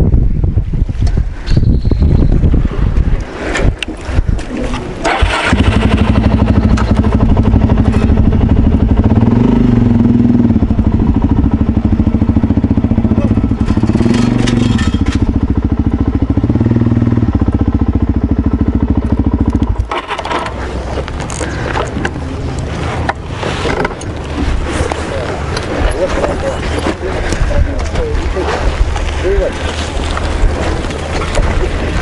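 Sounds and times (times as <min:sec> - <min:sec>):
motorcycle engine starting and idling: 0:04.6 - 0:24.2.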